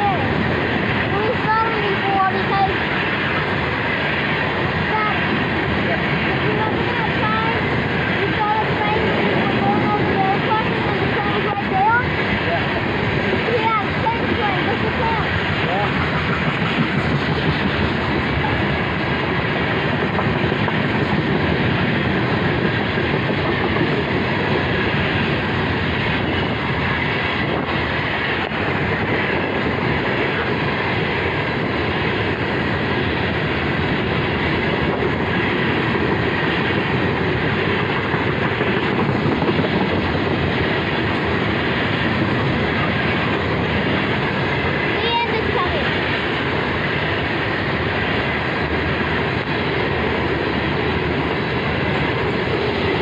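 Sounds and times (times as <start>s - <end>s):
steel wheels rumbling on rails: 0.0s - 53.0s.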